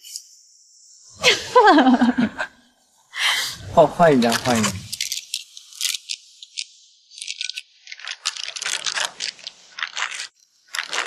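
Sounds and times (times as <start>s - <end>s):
packet wrapper crinkling: 4.2s - 11.0s.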